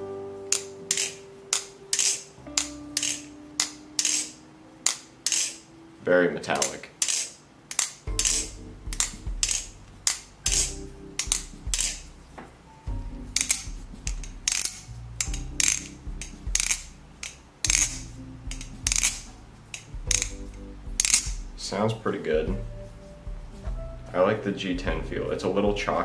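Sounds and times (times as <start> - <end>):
metallic clicks of flipping knife: 0.5 - 5.7, 6.6 - 12.1, 13.3 - 21.4.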